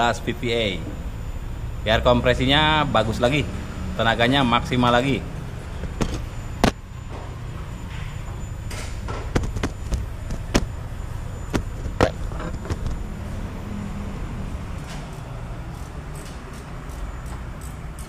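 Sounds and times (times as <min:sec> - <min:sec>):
steady low hum: 0:00.0 - 0:17.2
tools knocking and tapping on engine: 0:05.8 - 0:07.3, 0:09.0 - 0:10.8, 0:11.5 - 0:13.0.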